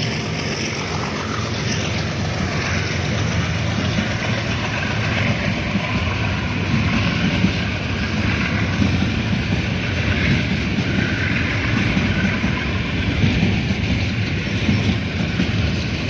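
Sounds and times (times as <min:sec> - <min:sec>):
train wheels rumbling on rails: 0:00.0 - 0:16.0.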